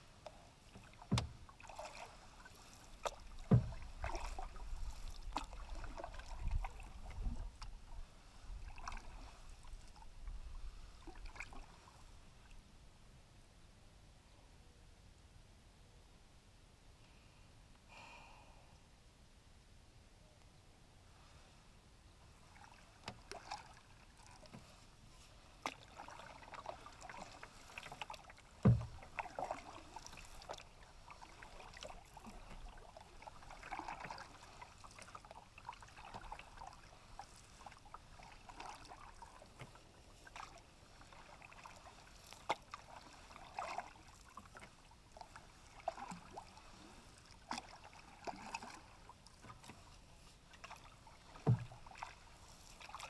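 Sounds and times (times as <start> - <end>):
paddle swishing and dripping in water: 0.0 - 12.7, 22.2 - 53.0
low thump: 1.1 - 1.4, 3.4 - 4.2, 28.6 - 29.0, 51.5 - 51.8.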